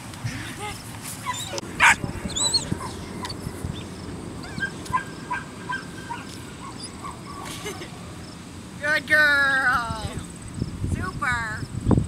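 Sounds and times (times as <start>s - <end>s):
puppy yipping and barking: 1.2s - 3.5s, 4.4s - 7.5s.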